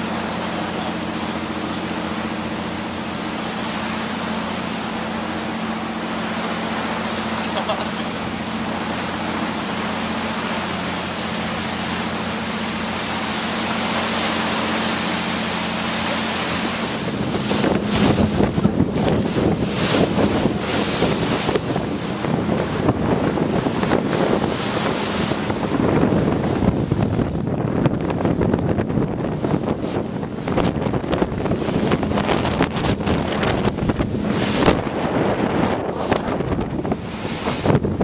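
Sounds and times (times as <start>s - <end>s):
boat engine hum: 0.0s - 38.0s
water rushing: 0.0s - 38.0s
wind buffeting microphone: 14.2s - 38.0s.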